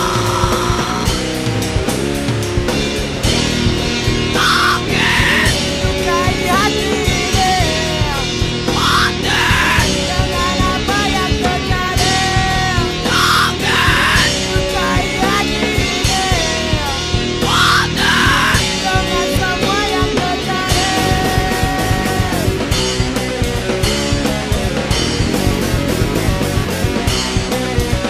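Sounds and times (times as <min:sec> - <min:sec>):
rock music: 0:00.0 - 0:28.0.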